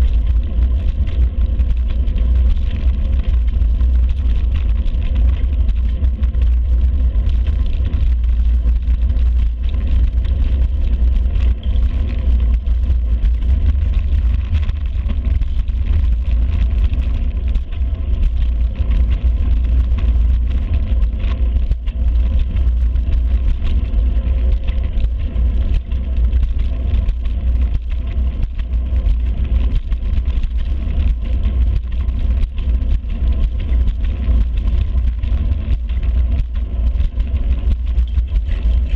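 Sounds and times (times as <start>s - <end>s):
road and tyre noise: 0.0s - 38.9s
wind buffeting microphone: 0.0s - 38.9s.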